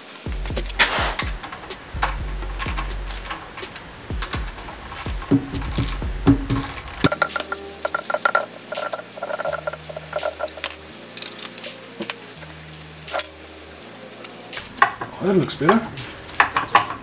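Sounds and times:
background music with bass: 0:00.0 - 0:17.0
spanner and ratchet clinking: 0:00.3 - 0:12.2, 0:13.1 - 0:13.4.

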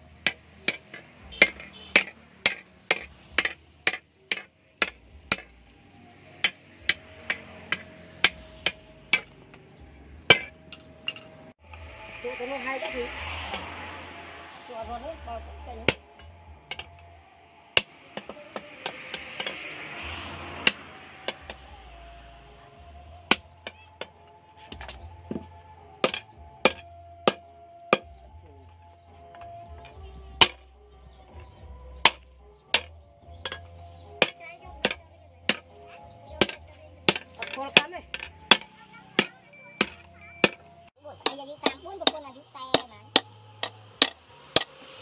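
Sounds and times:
hammer striking hot steel on anvil: 0:00.2 - 0:05.6, 0:06.4 - 0:09.4, 0:10.3 - 0:11.4, 0:15.8 - 0:17.0, 0:17.7 - 0:21.7, 0:23.3 - 0:23.8, 0:26.0 - 0:28.1, 0:36.4 - 0:40.6, 0:41.2 - 0:45.0.

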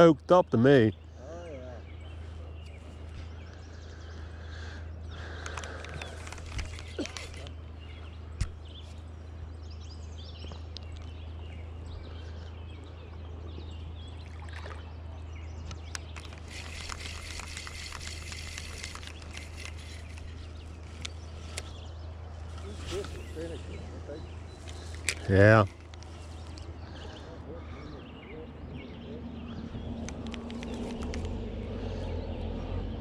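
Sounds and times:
river water trickling: 0:01.9 - 0:27.4.

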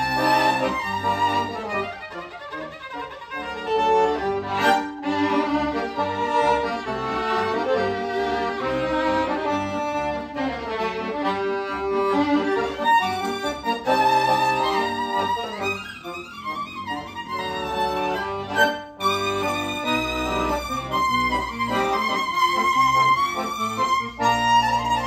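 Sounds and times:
accordion playing: 0:00.0 - 0:25.0
violin playing: 0:00.0 - 0:25.0.

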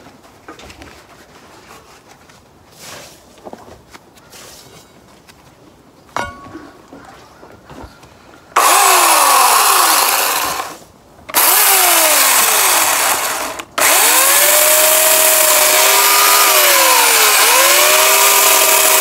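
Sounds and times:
electric chainsaw running: 0:08.6 - 0:19.0.

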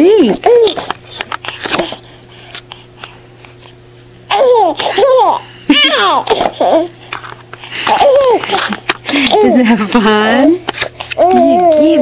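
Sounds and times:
baby laughing: 0:04.3 - 0:06.9, 0:07.8 - 0:09.6.

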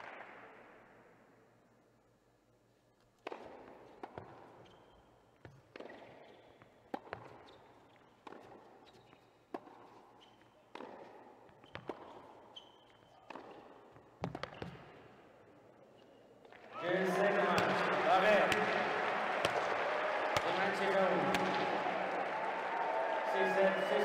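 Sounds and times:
tennis ball struck by rackets: 0:03.2 - 0:04.5, 0:06.9 - 0:07.4, 0:08.2 - 0:08.8, 0:10.7 - 0:12.3, 0:13.2 - 0:15.0
shoe squeaks on hard court: 0:04.5 - 0:15.0.

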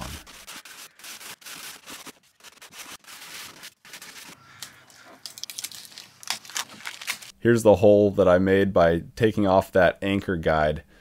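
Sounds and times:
packaging tape crackling: 0:00.0 - 0:07.3.

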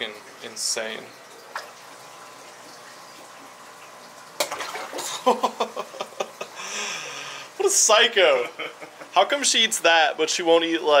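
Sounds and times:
steady background hum: 0:00.0 - 0:11.0
water splashing and slapping: 0:02.5 - 0:05.5.

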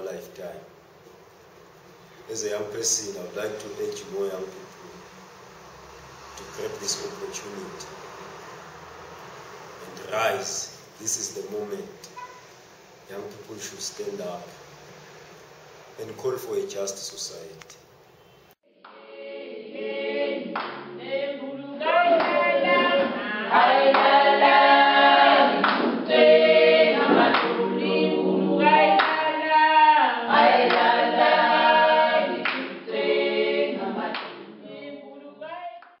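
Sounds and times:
group singing in harmony: 0:18.7 - 0:35.9
hand claps: 0:18.8 - 0:19.0, 0:20.5 - 0:20.9, 0:22.2 - 0:22.4, 0:23.9 - 0:24.2, 0:25.6 - 0:26.0, 0:27.2 - 0:27.5, 0:29.0 - 0:29.3, 0:30.7 - 0:30.9, 0:32.4 - 0:32.7, 0:34.1 - 0:34.4.

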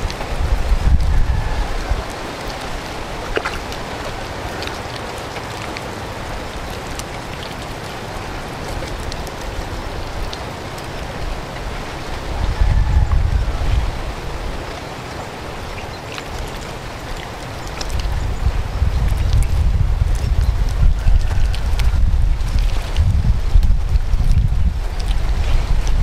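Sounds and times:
faint wet clicks: 0:01.9 - 0:06.0, 0:06.6 - 0:09.5, 0:15.8 - 0:18.2, 0:19.0 - 0:26.0.

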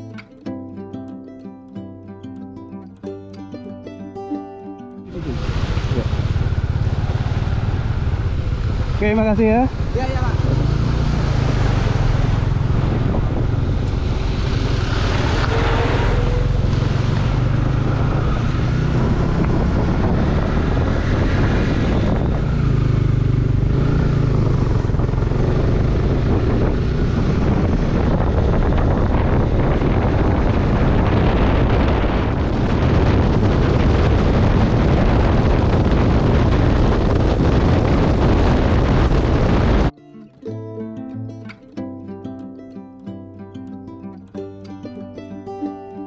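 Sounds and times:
motorcycle engine rumble: 0:05.1 - 0:39.9
wind buffeting microphone: 0:05.1 - 0:39.9.

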